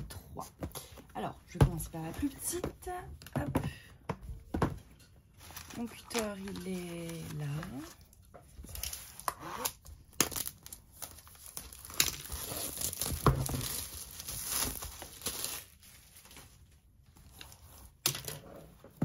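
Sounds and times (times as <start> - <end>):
plastic film tearing and crinkling: 5.4 - 18.2.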